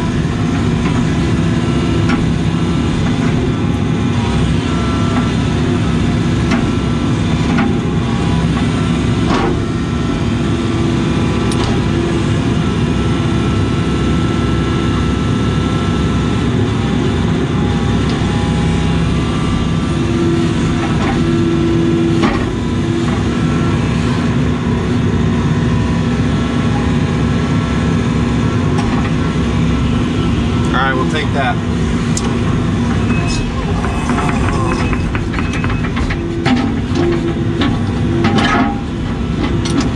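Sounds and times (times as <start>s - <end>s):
excavator engine and hydraulic whine: 0.0s - 39.9s
sharp knocks: 33.3s - 38.7s.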